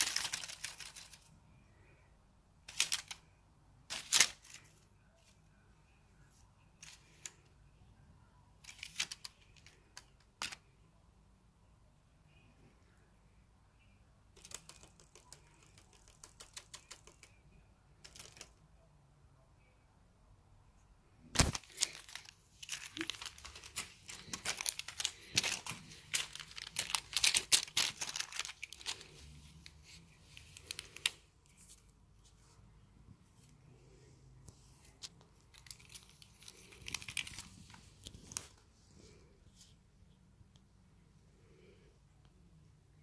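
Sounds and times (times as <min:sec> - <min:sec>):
crinkly film toy crackling: 0:00.0 - 0:01.4, 0:02.6 - 0:05.3, 0:08.6 - 0:10.7, 0:14.3 - 0:17.4, 0:18.0 - 0:18.6, 0:21.3 - 0:31.9, 0:34.9 - 0:38.6.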